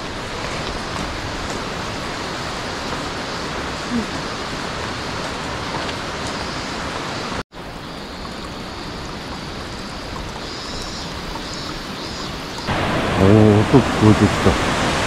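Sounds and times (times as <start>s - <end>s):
water rushing down rock face: 0.0s - 7.4s, 8.0s - 15.0s.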